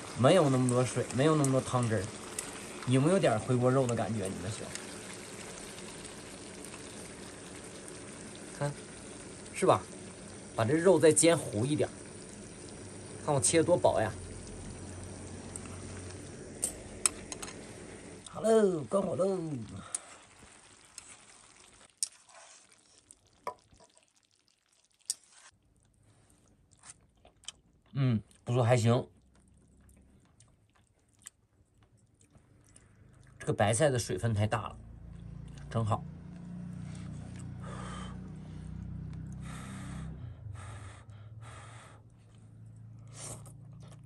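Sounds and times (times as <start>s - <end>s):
food sizzling in a pan: 0.0s - 25.6s
person chewing food: 19.9s - 28.4s, 29.1s - 33.4s, 36.3s - 37.6s, 42.0s - 44.0s
noisy breaths: 36.7s - 43.6s.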